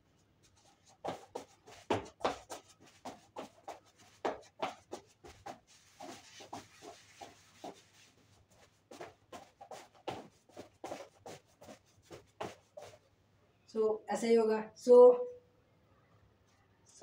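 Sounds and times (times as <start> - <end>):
sneakers sliding scuffs: 1.0 - 13.0
sneakers tapping on floor: 1.1 - 7.8, 8.9 - 13.0.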